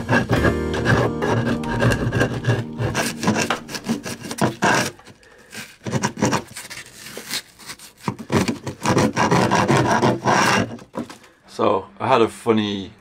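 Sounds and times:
scraper gouging rotten wood: 0.0s - 11.2s.

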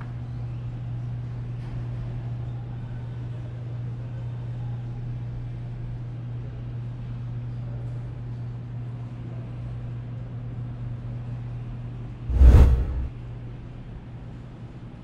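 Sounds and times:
steady low hum: 12.3s - 13.2s.

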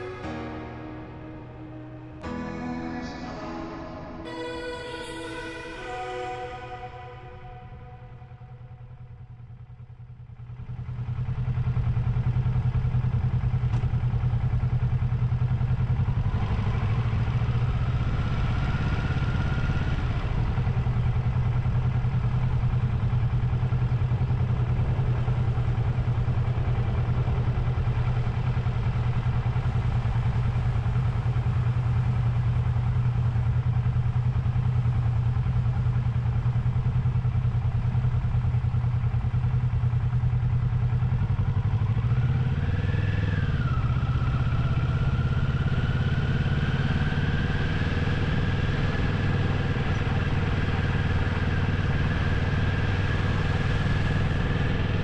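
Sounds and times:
motorcycle engine running: 0.0s - 2.6s, 4.3s - 55.0s
rising whine: 0.0s - 33.0s, 40.5s - 55.0s.

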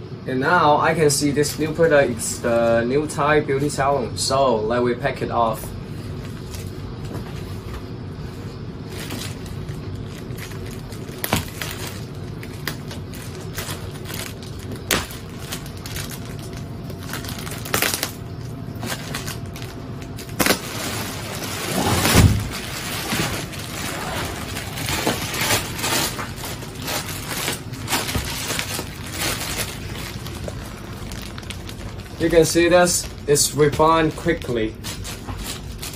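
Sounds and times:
plastic packaging crinkling: 8.8s - 35.9s.

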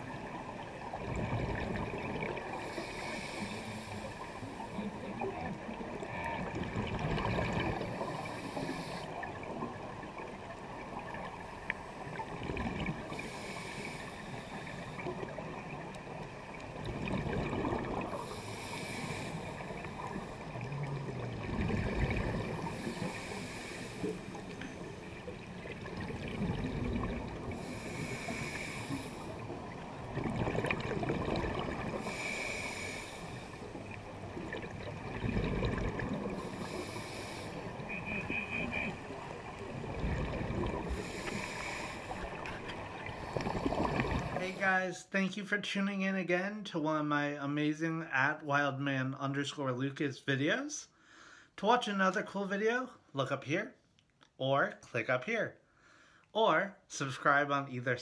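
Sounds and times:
exhaled bubbles rumbling: 0.0s - 3.3s, 4.8s - 8.4s, 9.1s - 13.2s, 14.9s - 18.4s, 19.4s - 23.3s, 24.1s - 32.8s, 33.4s - 37.0s, 37.6s - 44.4s
regulator inhalation hiss: 2.6s - 4.7s, 7.9s - 9.1s, 13.1s - 15.1s, 18.2s - 20.5s, 22.8s - 24.4s, 27.6s - 29.4s, 32.0s - 33.6s, 36.4s - 37.8s, 41.0s - 42.3s.

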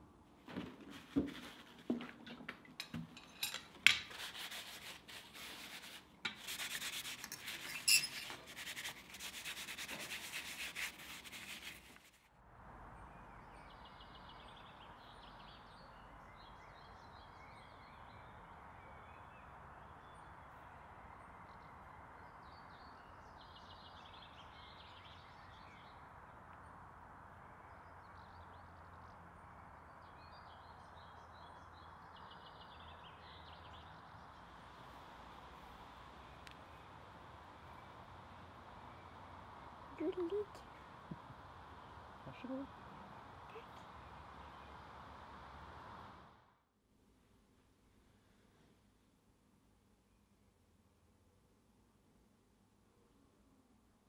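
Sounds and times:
outdoor background noise: 0.0s - 54.0s
cloth scrubbing on metal: 4.0s - 12.2s
small birds chirping: 13.2s - 46.3s.

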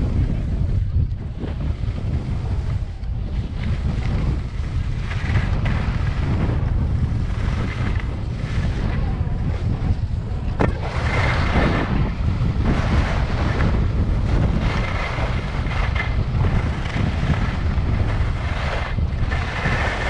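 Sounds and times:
skis carving on snow: 0.0s - 20.0s
wind buffeting microphone: 0.0s - 20.0s.

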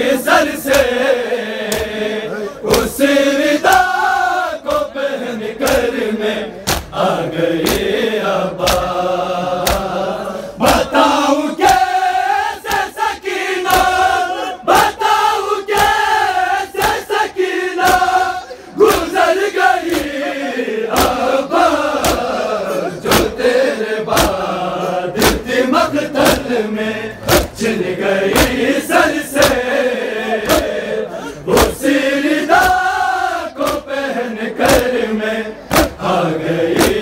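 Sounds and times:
crowd of men chanting: 0.0s - 37.0s
chest-beating slaps: 0.6s - 1.0s, 1.6s - 2.0s, 5.6s - 6.0s, 6.6s - 7.0s, 7.6s - 8.0s, 8.6s - 9.0s, 9.6s - 10.0s, 10.6s - 10.9s, 12.6s - 13.0s, 13.6s - 14.0s, 15.7s - 16.1s, 17.8s - 18.2s, 19.8s - 20.2s, 20.9s - 22.4s, 23.0s - 23.4s, 24.1s - 24.5s, 25.2s - 25.6s, 27.2s - 27.6s, 28.3s - 28.6s, 30.4s - 30.8s, 33.6s - 33.9s, 34.6s - 35.0s, 35.7s - 36.1s, 36.7s - 37.0s.

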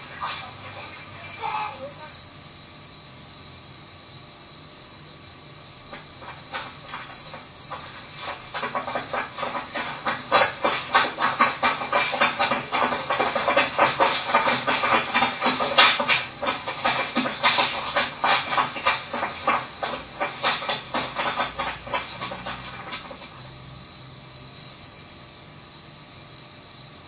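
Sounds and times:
crickets chirping: 0.0s - 27.0s
rapid crackling clicks: 5.9s - 23.3s.

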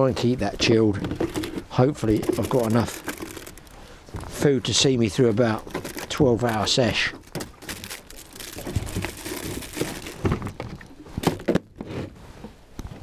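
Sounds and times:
wrappers crinkling: 1.3s - 3.8s, 5.6s - 10.6s.

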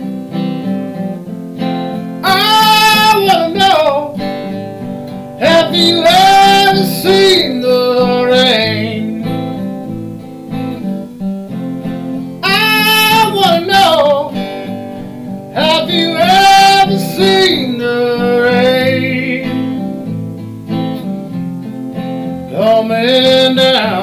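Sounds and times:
acoustic guitar strumming: 0.0s - 24.0s
man singing: 2.2s - 4.6s, 5.4s - 9.7s, 12.4s - 14.8s, 15.5s - 19.9s, 22.5s - 24.0s.

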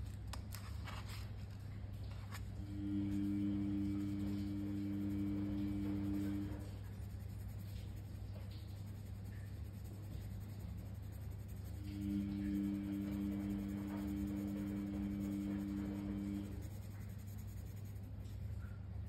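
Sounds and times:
low hum: 1.6s - 19.0s
pencil scratching on paper: 2.4s - 18.6s
two-note drone: 11.8s - 16.6s.

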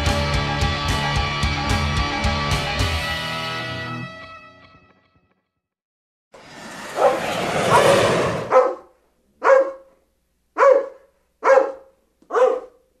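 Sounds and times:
rough noise: 6.4s - 8.6s
dog barking: 6.9s - 10.0s, 10.6s - 13.0s.

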